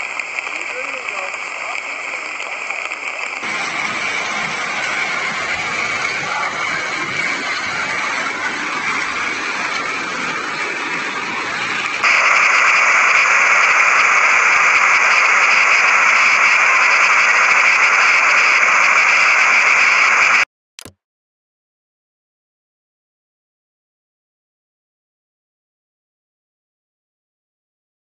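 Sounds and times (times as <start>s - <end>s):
rain: 0.0s - 18.5s
flood torrent rushing: 3.4s - 17.2s.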